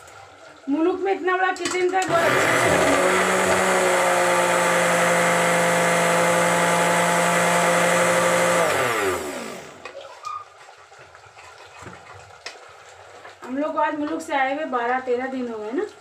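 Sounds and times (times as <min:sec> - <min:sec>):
electric mixer grinder running: 0:02.0 - 0:09.9.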